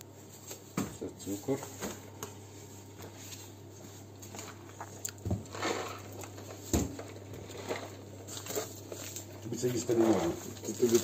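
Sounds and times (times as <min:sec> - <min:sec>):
packaging and cardboard rustling: 0:02.8 - 0:11.0.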